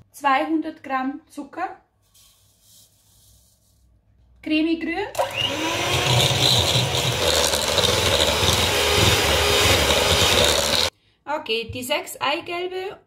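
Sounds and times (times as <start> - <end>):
electric mixer running: 5.2 - 10.9.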